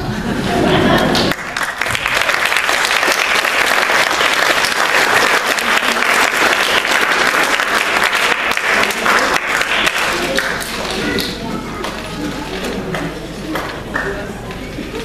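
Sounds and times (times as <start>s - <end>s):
audience applauding: 0.9s - 11.4s.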